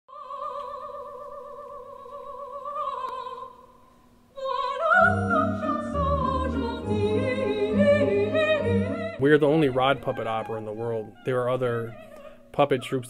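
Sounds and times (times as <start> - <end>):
operatic singing: 4.4 - 13.0
orchestral accompaniment: 5.0 - 11.0.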